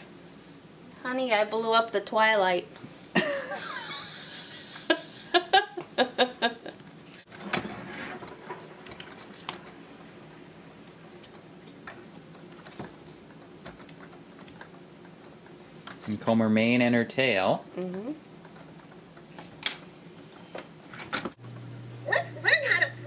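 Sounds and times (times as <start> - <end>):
people laughing: 3.2 - 6.8.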